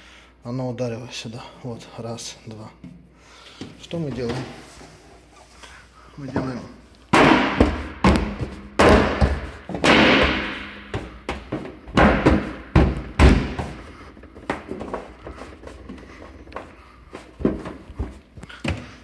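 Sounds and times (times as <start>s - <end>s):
hammer striking sheet metal: 7.1s - 11.3s.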